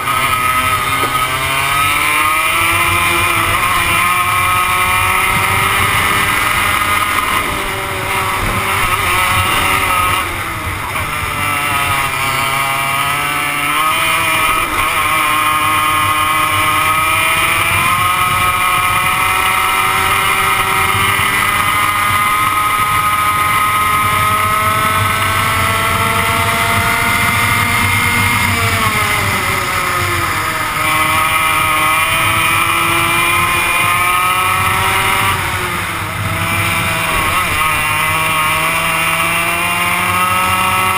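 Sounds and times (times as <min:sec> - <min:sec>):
kart engine at racing speed: 0:00.0 - 0:40.9.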